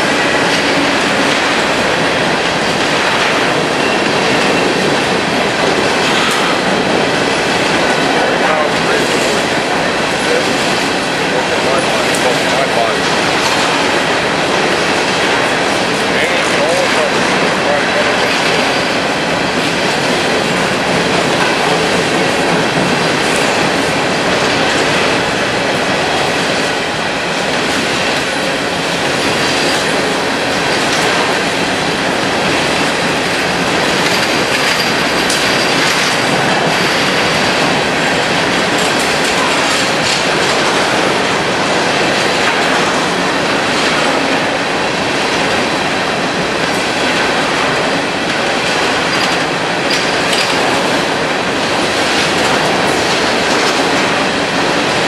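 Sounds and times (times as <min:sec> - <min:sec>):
train wheels rumbling on rail: 0:00.0 - 0:55.0
clicks over rail joints: 0:32.4 - 0:45.8.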